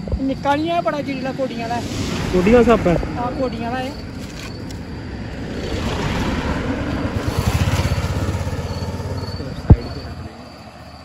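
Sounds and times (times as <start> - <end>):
vehicle engine passing: 1.0 - 11.0.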